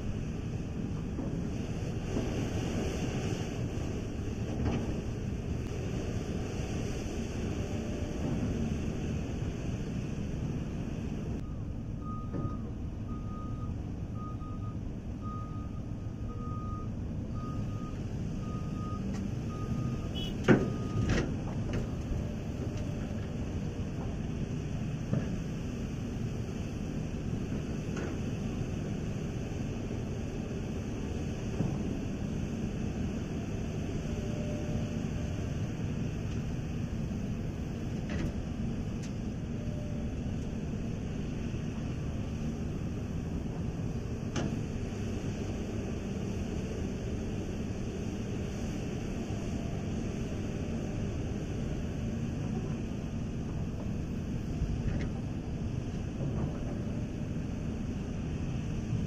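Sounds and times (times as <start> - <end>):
diesel engine rumble: 0.0 - 59.0
reversing alarm beeping: 11.4 - 21.1.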